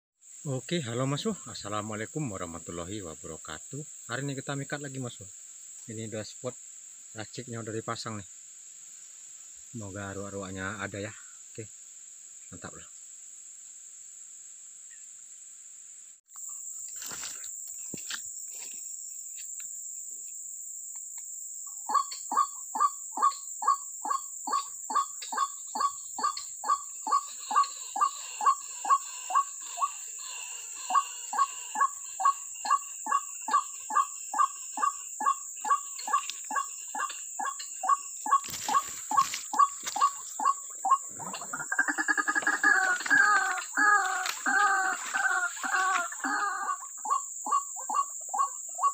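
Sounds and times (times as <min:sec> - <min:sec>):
high insect drone: 0:00.2 - 0:48.9
waterhen croaking call: 0:21.8 - 0:48.9.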